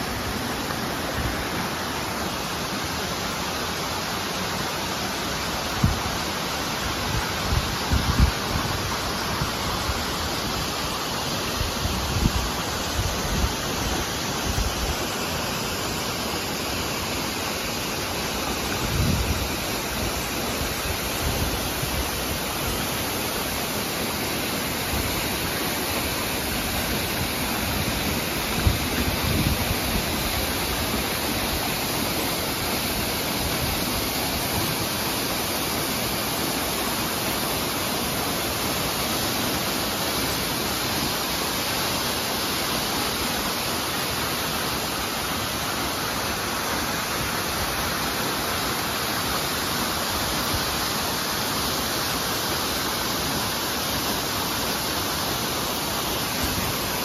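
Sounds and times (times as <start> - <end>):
waterfall rushing onto rocks: 0.0 - 57.0.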